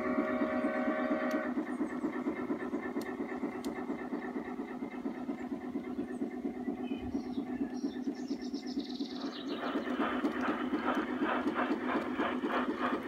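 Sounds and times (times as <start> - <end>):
chime steam whistle: 0.0 - 1.5
rapid steady pulsing: 0.0 - 13.0.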